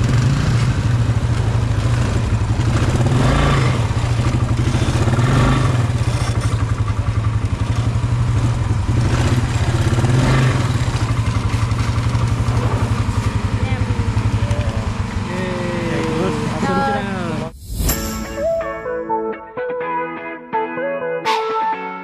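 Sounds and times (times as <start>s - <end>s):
quad bike engine putter: 0.0s - 16.6s.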